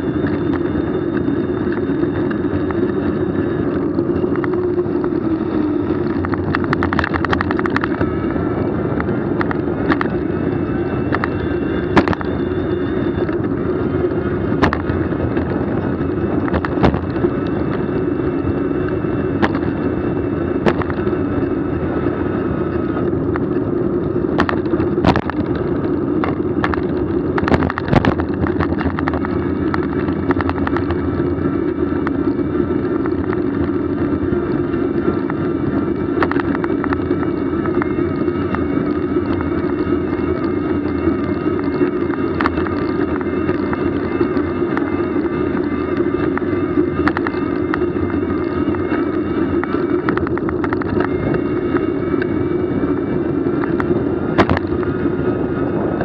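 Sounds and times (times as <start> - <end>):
bicycle rolling noise: 0.0 - 56.0
wind: 0.0 - 56.0
sharp clicks and knocks: 5.9 - 8.2, 9.0 - 10.2, 11.0 - 12.4, 14.6 - 18.0, 18.8 - 19.8, 20.6 - 21.5, 24.3 - 34.1, 36.1 - 52.4, 53.6 - 54.9.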